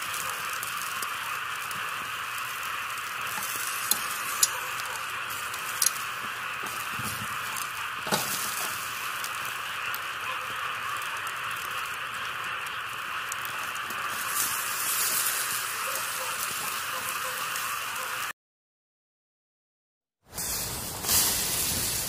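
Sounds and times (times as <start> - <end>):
coals crackling and popping: 0.0 - 18.3, 20.3 - 22.0
meat sizzling over charcoal: 0.0 - 18.3, 20.3 - 22.0
metal rod knocking coals: 3.0 - 9.5.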